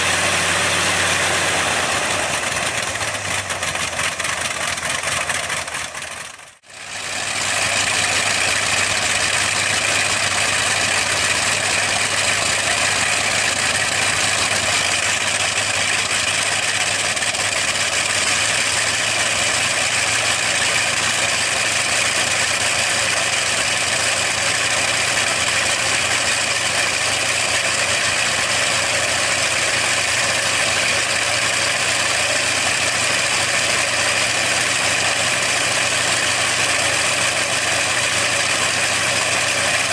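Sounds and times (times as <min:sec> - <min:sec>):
radial aircraft engine running: 0:00.0 - 0:39.9.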